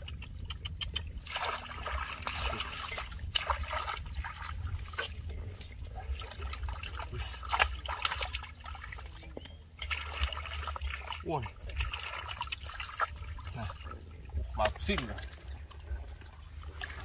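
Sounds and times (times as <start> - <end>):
hands splashing in muddy water: 1.2 - 14.0.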